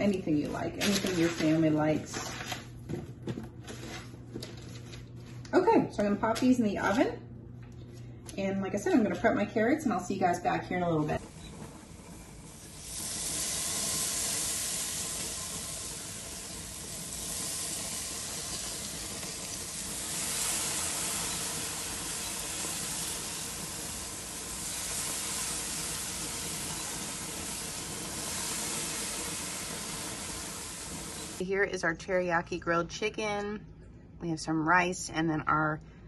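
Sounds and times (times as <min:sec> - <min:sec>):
chicken sizzling on a grill: 0:11.3 - 0:31.4
sauce dripping onto flames: 0:12.0 - 0:31.4.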